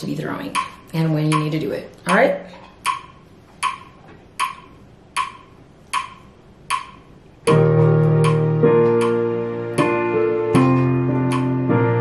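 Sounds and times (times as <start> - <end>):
metronome clicking: 0.5 - 9.2, 9.8 - 11.8
instrumental music with sustained chords: 7.4 - 12.0.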